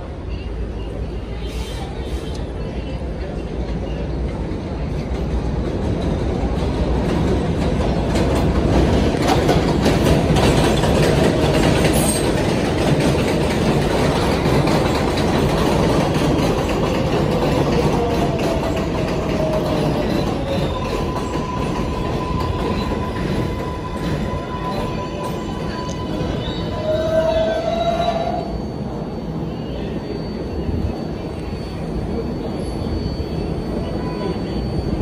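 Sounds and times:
train passing on elevated track: 0:00.0 - 0:35.0.

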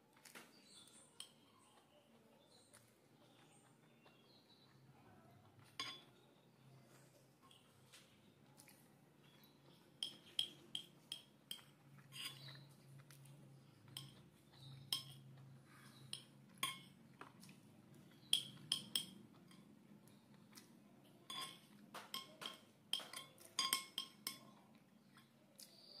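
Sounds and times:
spoon clinking on ceramic plate: 0:05.8 - 0:06.1, 0:10.0 - 0:12.6, 0:13.9 - 0:17.0, 0:18.2 - 0:19.7, 0:21.3 - 0:24.6.

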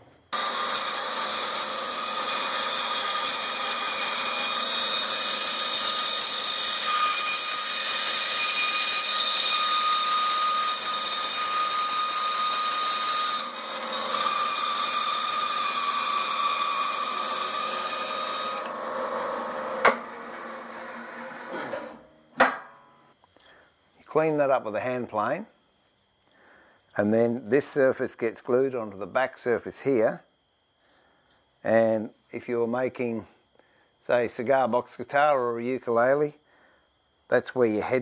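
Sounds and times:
bandsaw cutting wood: 0:00.3 - 0:22.0.

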